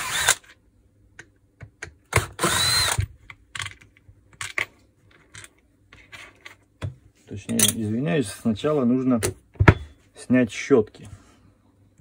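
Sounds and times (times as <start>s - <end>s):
cordless screwdriver running: 0.0s - 0.4s, 2.2s - 3.0s.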